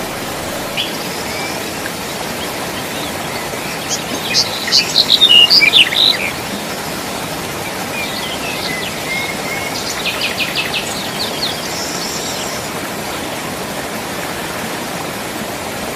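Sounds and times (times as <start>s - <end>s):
stream rushing over rocks: 0.0s - 15.9s
bird singing: 2.4s - 6.6s, 7.9s - 12.7s.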